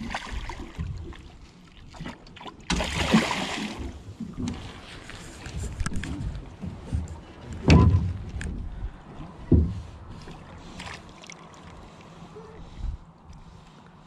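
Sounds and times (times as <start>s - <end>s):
dull thuds on a boat: 5.7s - 10.5s.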